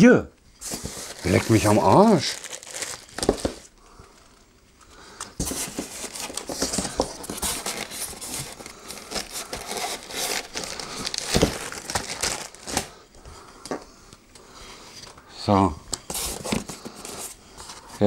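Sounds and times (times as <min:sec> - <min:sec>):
plastic packaging crinkling: 0:00.6 - 0:04.3, 0:05.6 - 0:13.0.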